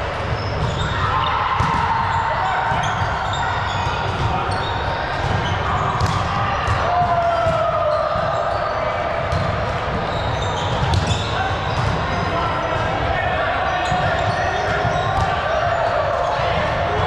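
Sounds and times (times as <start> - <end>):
volleyball hits: 0.2 - 3.2, 5.1 - 8.4, 9.2 - 13.1, 13.8 - 15.7
sneakers squeaking on gym floor: 0.2 - 12.2, 13.7 - 16.6.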